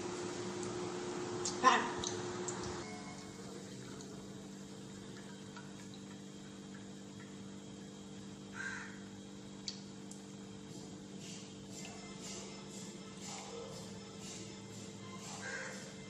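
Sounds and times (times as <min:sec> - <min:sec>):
low steady hum: 0:00.0 - 0:15.4.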